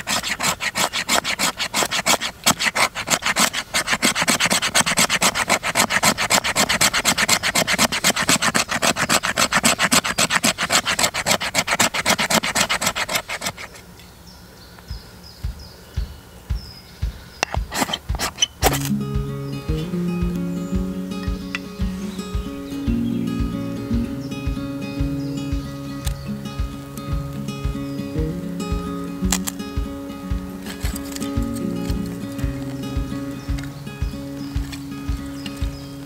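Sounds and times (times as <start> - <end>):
hand tool rasping on wood: 0.0 - 13.8, 17.4 - 18.7.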